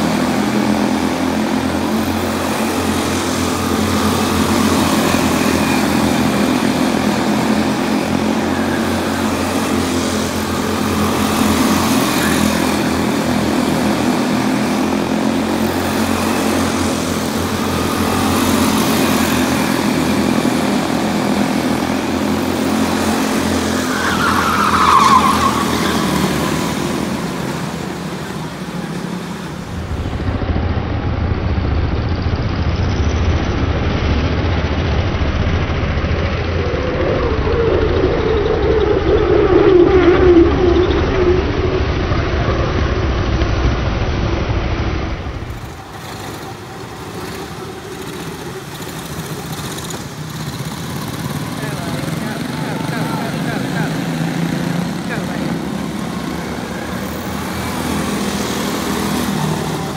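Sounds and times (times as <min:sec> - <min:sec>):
car passing close: 0:00.0 - 0:30.6
race car engines buzzing: 0:00.0 - 0:59.9.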